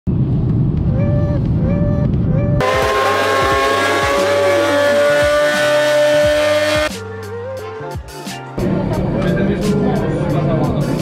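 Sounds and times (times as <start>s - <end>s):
airliner cabin rumble: 0.1s - 2.6s
motorcycle engine at high revs: 3.8s - 6.9s.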